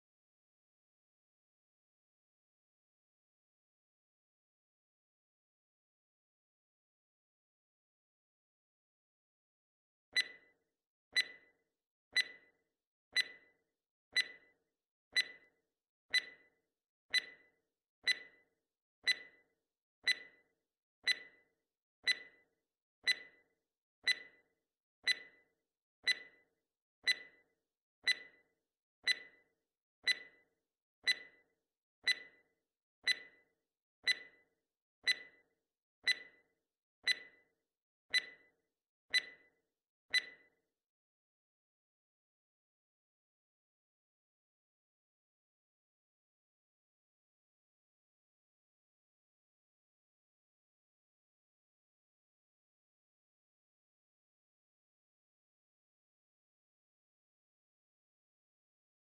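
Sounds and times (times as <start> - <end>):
clock-like timer ticking: 10.2 - 10.5, 11.2 - 11.5, 12.2 - 12.6, 13.2 - 13.5, 14.2 - 14.5, 15.1 - 15.5, 16.1 - 16.5, 17.1 - 18.4, 19.0 - 19.4, 20.0 - 20.4, 21.0 - 21.4, 22.0 - 22.4, 23.0 - 23.4, 24.0 - 24.4, 25.0 - 25.4, 26.0 - 26.4, 27.0 - 27.4, 28.0 - 28.4, 29.0 - 29.4, 30.0 - 30.4, 31.0 - 31.4, 32.0 - 32.4, 33.0 - 33.4, 34.0 - 34.4, 35.0 - 35.4, 36.0 - 36.4, 37.0 - 37.4, 38.1 - 38.4, 39.1 - 39.5, 40.1 - 40.4.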